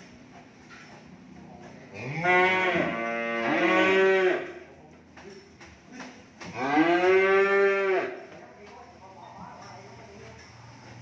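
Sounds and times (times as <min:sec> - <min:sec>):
cattle mooing: 0:01.9 - 0:04.5, 0:06.5 - 0:08.2.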